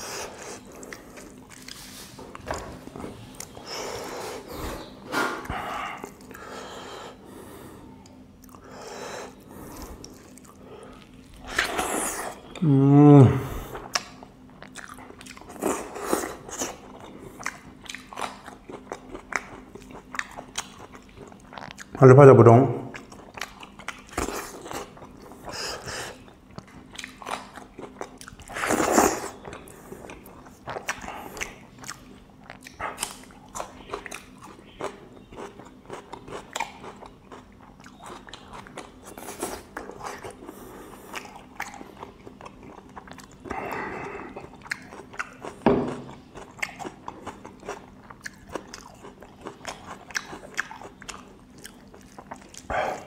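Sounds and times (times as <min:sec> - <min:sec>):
close-up chewing: 0:00.0 - 0:06.8, 0:07.9 - 0:12.7, 0:13.5 - 0:22.0, 0:22.9 - 0:53.0.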